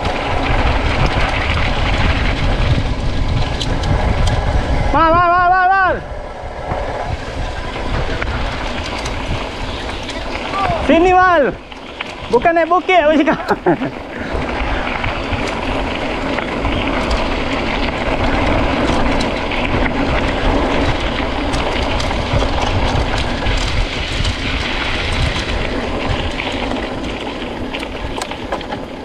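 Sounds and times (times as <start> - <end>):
bike rattling: 0.0 - 29.0
tyres rumbling on dirt: 0.0 - 29.0
small clicks: 26.3 - 29.0.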